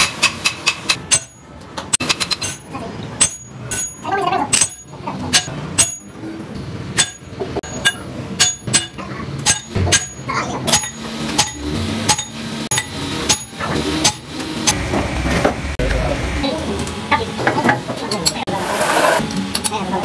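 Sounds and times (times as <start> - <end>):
hammer clanking on steel: 0.0 - 6.2, 7.0 - 14.8.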